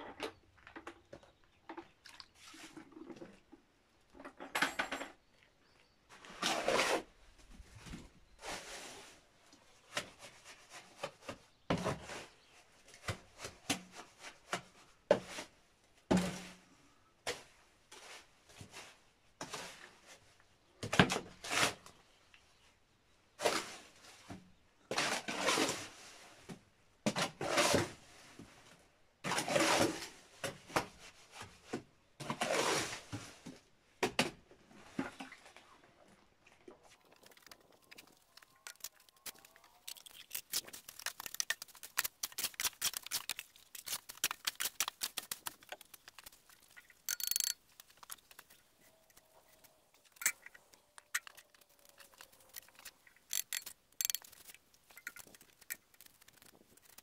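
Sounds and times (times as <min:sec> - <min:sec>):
tool scraping through mortar: 0:37.0 - 0:57.0.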